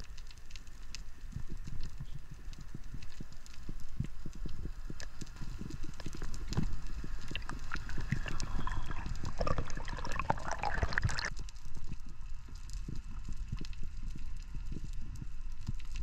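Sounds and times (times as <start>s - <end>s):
underwater clicks crackling: 0.0s - 11.9s
low water rumble: 0.0s - 16.0s
underwater gurgling: 4.9s - 11.4s.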